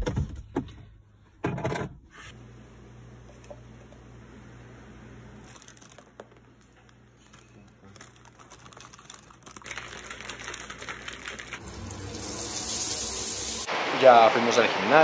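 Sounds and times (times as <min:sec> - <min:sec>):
plastic bag rustling: 0:05.4 - 0:11.6
cereal pieces pattering into cup: 0:05.6 - 0:06.4, 0:07.2 - 0:11.6
shaker cup shaken: 0:07.3 - 0:11.6.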